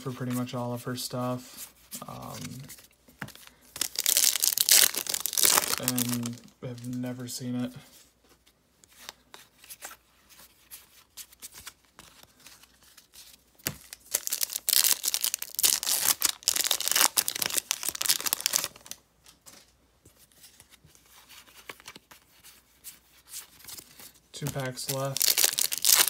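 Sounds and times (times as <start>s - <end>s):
card handling and rustling: 1.5s - 26.0s
wrapper tearing and crinkling: 3.8s - 6.5s, 13.9s - 19.0s, 24.5s - 26.0s.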